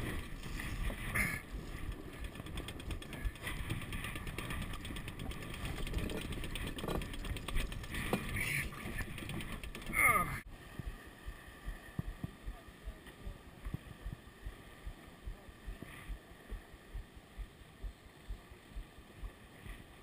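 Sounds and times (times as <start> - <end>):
wind buffeting microphone: 0.0 - 11.0
water rushing along hull: 0.0 - 20.0.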